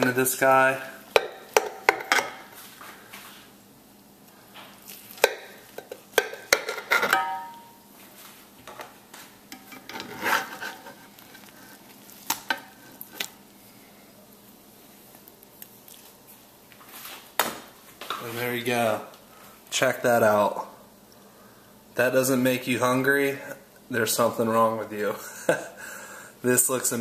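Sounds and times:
knife and spatula scraping skillet: 9.5s - 11.8s.

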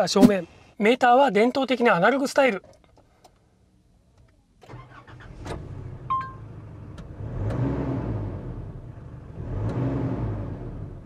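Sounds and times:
diesel engine starting and running: 4.6s - 11.0s.

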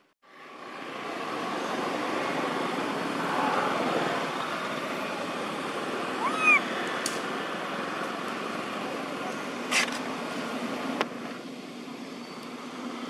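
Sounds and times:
outdoor background noise: 0.0s - 13.0s
animal call rising and falling: 6.1s - 6.7s.

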